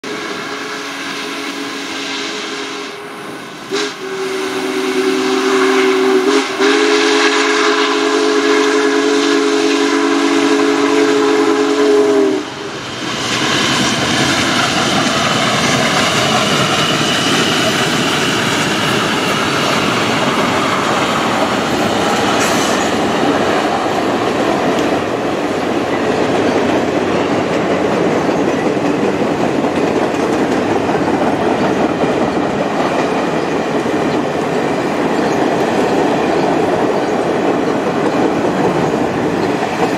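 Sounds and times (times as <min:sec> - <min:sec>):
steam locomotive chime whistle: 0:00.0 - 0:12.8
train rumbling and clattering past: 0:00.0 - 0:39.9.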